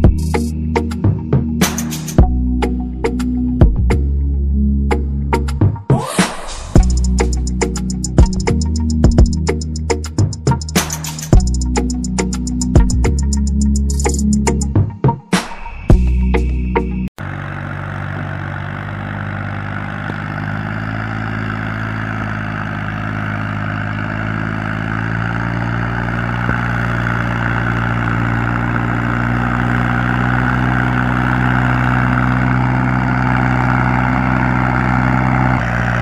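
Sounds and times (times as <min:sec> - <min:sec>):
tractor engine running: 0:06.8 - 0:14.7, 0:17.2 - 0:36.0.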